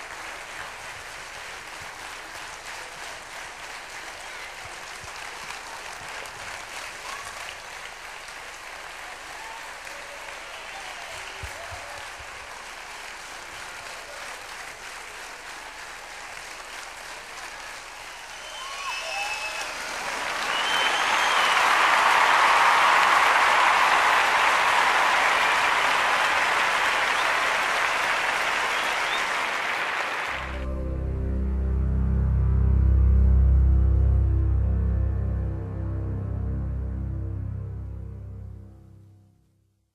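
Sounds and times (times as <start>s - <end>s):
audience applauding: 0.0s - 30.8s.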